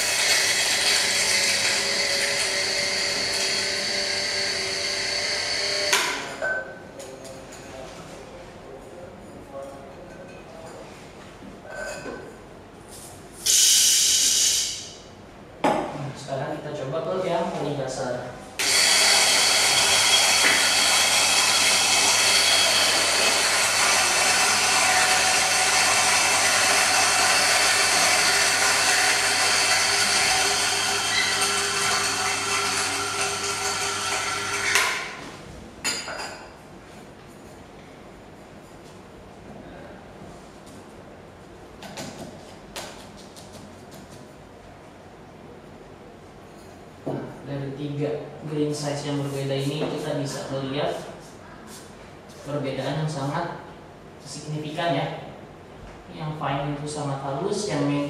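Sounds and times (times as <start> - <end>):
coffee grinder whirring: 0.0 - 6.4, 18.6 - 35.2.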